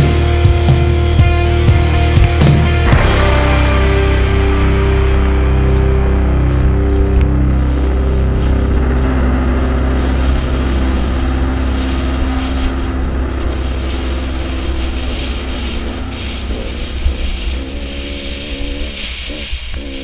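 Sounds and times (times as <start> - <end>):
dirt bike engine: 0.0 - 20.0
wind noise on microphone: 0.0 - 20.0.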